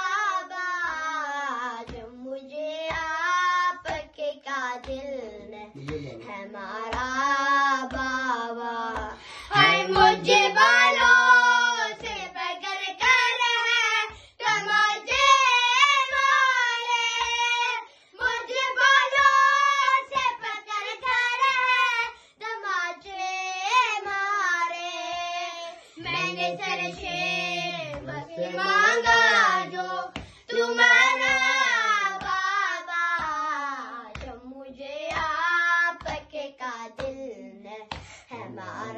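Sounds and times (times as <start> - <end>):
boys singing a lament: 0.0 - 38.9
hands thumping chest: 29.0 - 30.5, 37.9 - 38.2.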